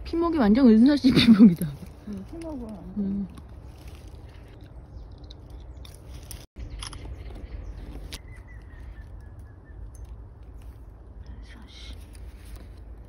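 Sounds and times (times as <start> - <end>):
twig and dry leaves crackling: 0.0 - 13.0.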